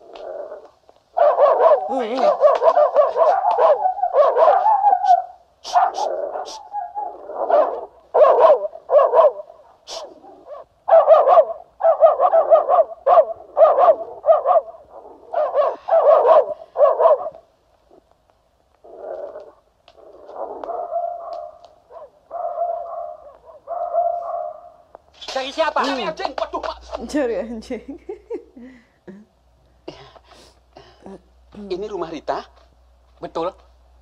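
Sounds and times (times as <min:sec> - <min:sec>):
dog barking: 0:01.1 - 0:17.5, 0:20.1 - 0:24.8.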